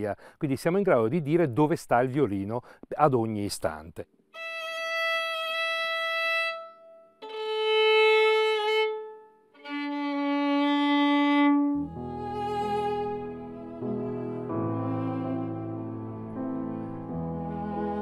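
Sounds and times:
violin bowed notes: 4.4 - 18.0
lower-pitched music: 9.6 - 18.0.

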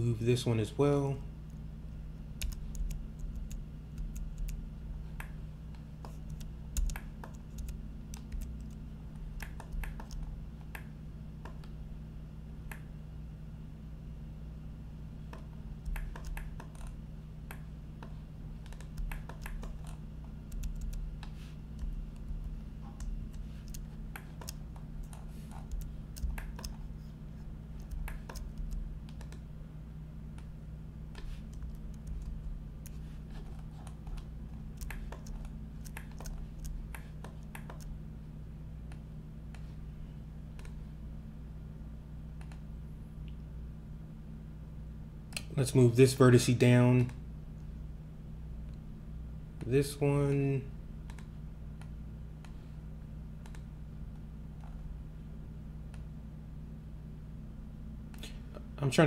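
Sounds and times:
low electrical hum: 0.0 - 59.0
keyboard and mouse clicking: 2.4 - 4.6, 6.0 - 8.8, 9.4 - 11.7, 15.3 - 17.6, 18.6 - 21.1, 21.8 - 26.8, 27.8 - 29.4, 34.0 - 37.9, 53.4 - 53.7.

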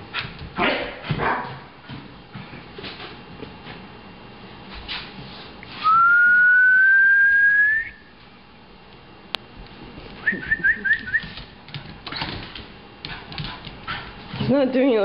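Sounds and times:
person whistling rising note: 5.8 - 8.1.

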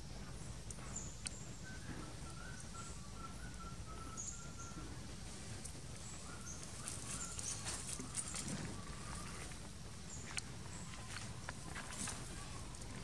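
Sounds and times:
steady low rumble: 0.0 - 13.0
bird whistling notes: 1.5 - 4.8, 6.1 - 9.3.

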